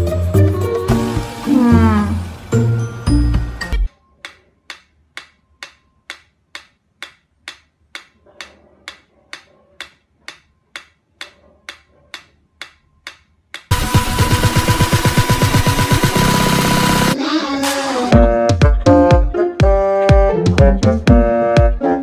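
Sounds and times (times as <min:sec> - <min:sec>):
metronome ticking: 0:03.8 - 0:13.8.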